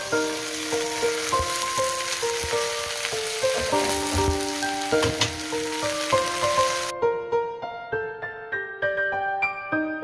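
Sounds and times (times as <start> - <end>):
fish sizzling in a pan: 0.0 - 6.9
simple background music melody: 0.0 - 10.0.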